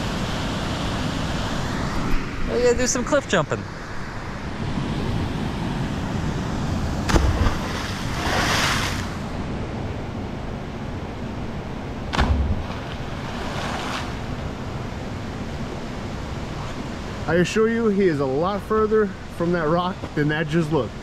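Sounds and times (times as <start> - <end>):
body splashing into water: 7.0 - 9.1.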